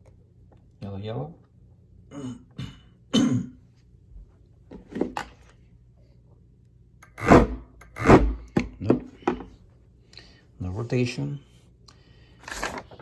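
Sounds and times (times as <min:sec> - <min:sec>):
person clearing throat: 0:02.1 - 0:03.6
person coughing: 0:02.1 - 0:03.6.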